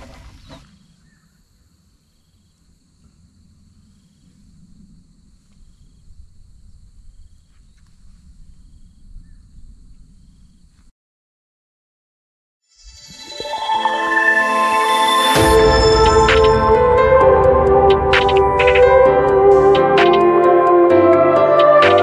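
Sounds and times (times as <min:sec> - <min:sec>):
insects trilling: 0:00.0 - 0:10.8
low rumble: 0:15.4 - 0:20.0.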